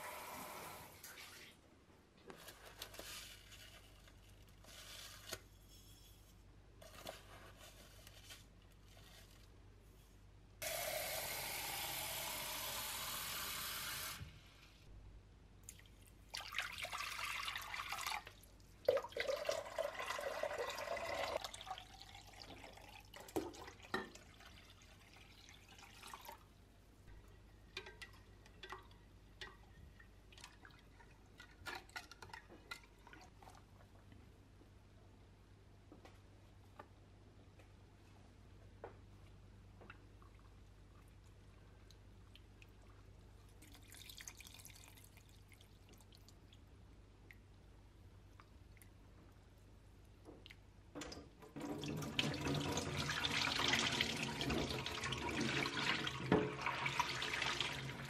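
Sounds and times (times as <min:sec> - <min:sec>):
water pouring and sloshing: 0:15.7 - 0:26.6, 0:27.7 - 0:34.1, 0:42.3 - 0:46.7, 0:50.4 - 0:58.0.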